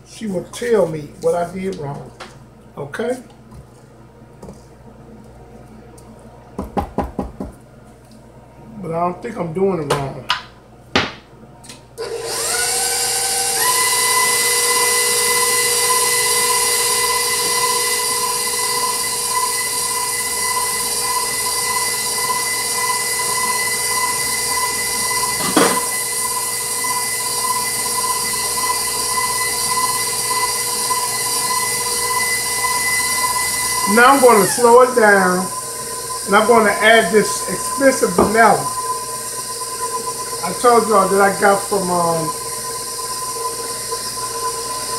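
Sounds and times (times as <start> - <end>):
stand mixer motor whining: 12.0 - 44.9.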